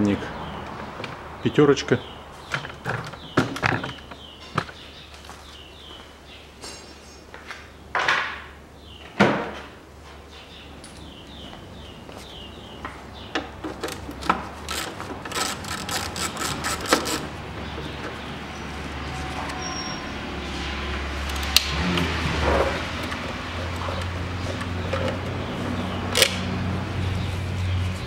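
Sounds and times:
hand tools clicking on metal: 13.7 - 17.3.

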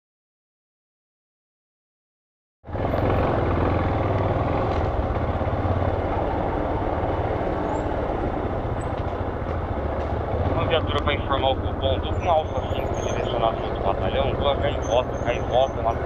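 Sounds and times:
motorcycle engine running: 2.7 - 16.0.

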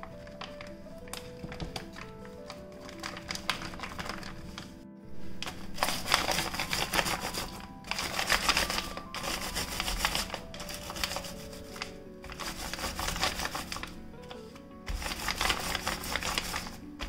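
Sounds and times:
plastic bag crinkling: 0.0 - 17.0
rolling pin crushing biscuits: 5.4 - 17.0.

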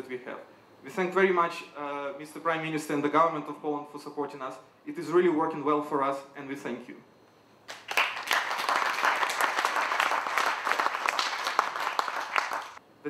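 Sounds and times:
audience applauding: 7.7 - 12.8.

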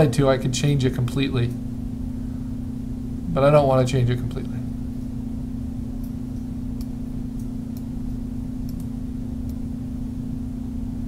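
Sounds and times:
low background hum: 0.0 - 11.0
faint mouse clicks: 6.0 - 7.9, 8.6 - 9.6.

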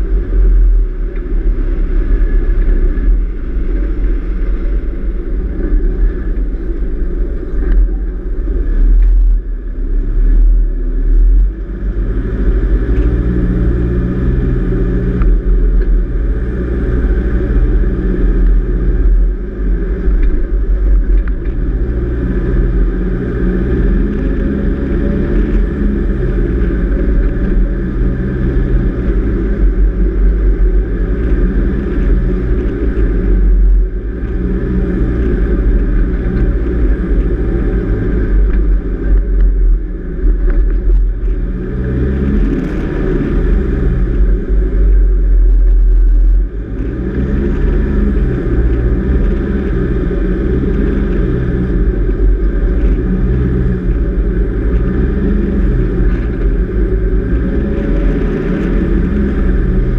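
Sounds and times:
heavy low rumble: 0.0 - 59.9
vehicle engine running: 0.0 - 59.9.

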